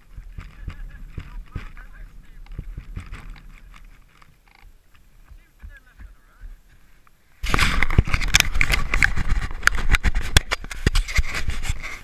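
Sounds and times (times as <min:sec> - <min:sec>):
fingers handling camera: 0:07.4 - 0:12.0.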